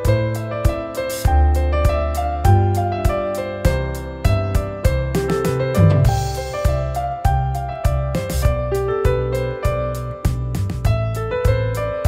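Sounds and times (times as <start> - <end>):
held keyboard notes: 2.4 - 9.7
steady beat: 5.2 - 7.0.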